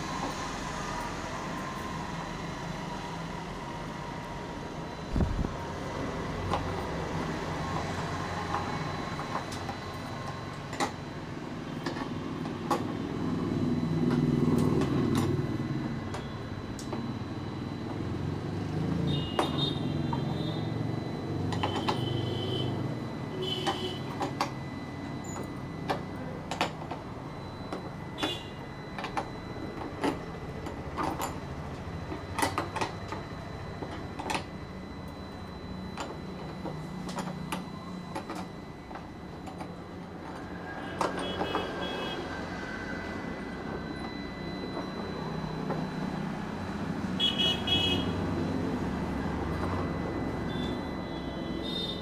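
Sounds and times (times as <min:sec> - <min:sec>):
machine hum with high whine: 0:00.0 - 0:52.0.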